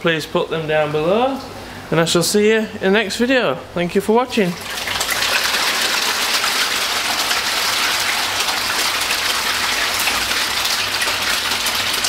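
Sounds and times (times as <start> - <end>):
fish splashing in water: 4.6 - 12.0.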